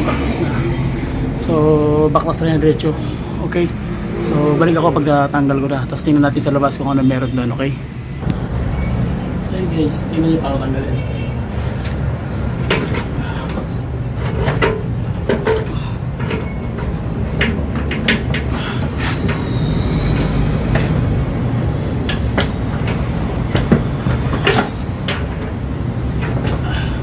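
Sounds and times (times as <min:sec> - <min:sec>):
metallic clunks and rattles: 0:12.5 - 0:19.5, 0:21.8 - 0:26.6.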